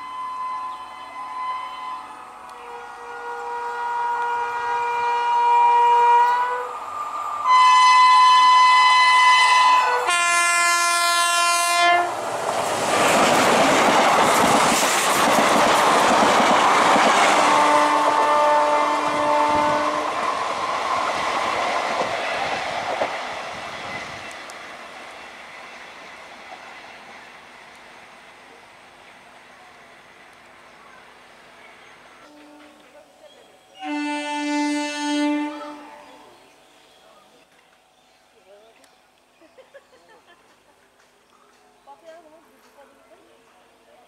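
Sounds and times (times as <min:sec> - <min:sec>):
electric train horn blasts: 0:00.0 - 0:06.8, 0:07.4 - 0:12.2, 0:17.3 - 0:20.2, 0:32.2 - 0:33.0, 0:33.8 - 0:36.4
train rushing past: 0:00.0 - 0:37.2.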